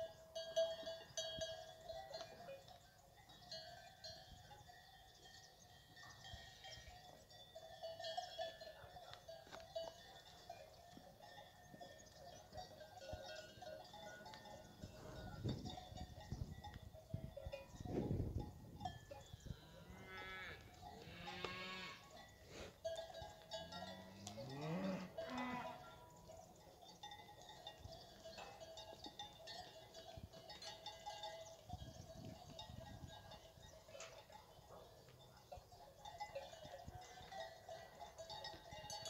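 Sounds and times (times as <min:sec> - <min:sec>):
cows mooing and bawling: 0:19.4 - 0:22.2, 0:23.5 - 0:26.0.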